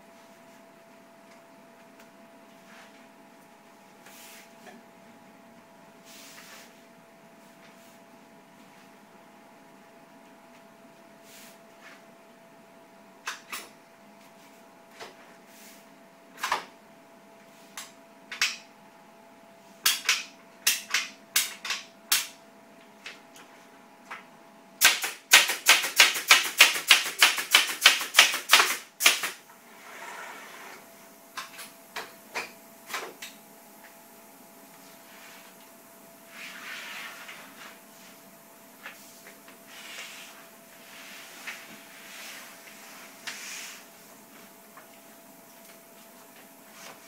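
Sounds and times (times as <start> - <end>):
faint steady hum: 29.4 - 47.0.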